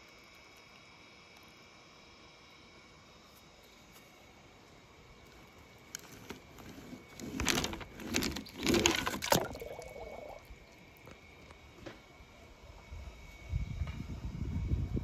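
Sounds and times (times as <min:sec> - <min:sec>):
toy car scraping across paper: 0:06.0 - 0:09.2
toy car splashing into water: 0:08.3 - 0:10.4
water bubbling gurgle: 0:08.4 - 0:10.8.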